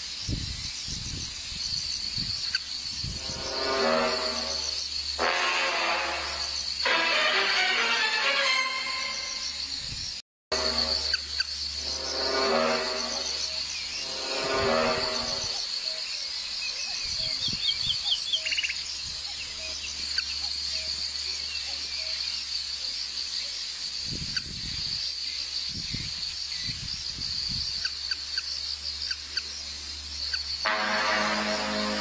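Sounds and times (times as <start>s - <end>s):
insects trilling: 0.0s - 32.0s
bird chirps: 15.6s - 22.2s.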